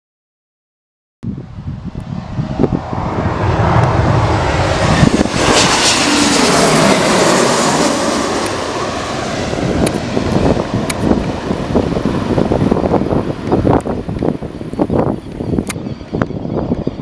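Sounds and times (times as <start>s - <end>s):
jet airliner passing overhead: 1.3s - 17.0s.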